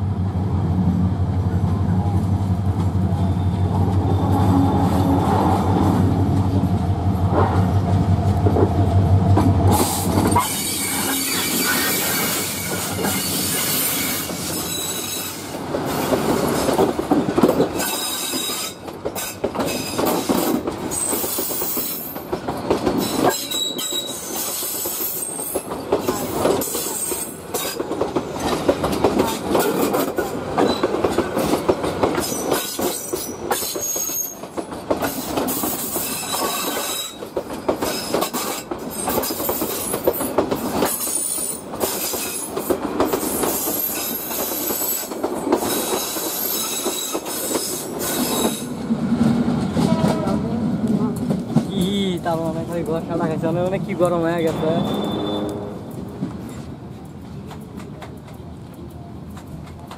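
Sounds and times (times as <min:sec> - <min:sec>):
train wheels squealing: 0:03.1 - 0:05.1, 0:09.8 - 0:16.0, 0:17.8 - 0:27.8, 0:32.2 - 0:40.0, 0:40.8 - 0:42.6, 0:43.2 - 0:48.8, 0:54.4 - 0:55.6
train wheels clacking on rails: 0:07.3 - 0:58.5.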